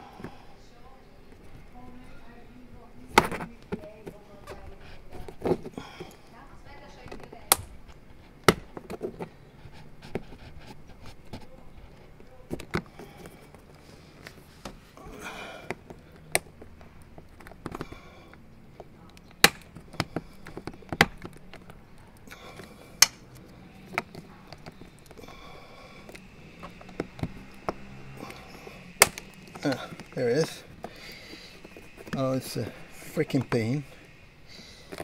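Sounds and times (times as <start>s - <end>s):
sharp plastic clicks and knocks: 18.8s - 25.2s, 29.0s - 30.1s.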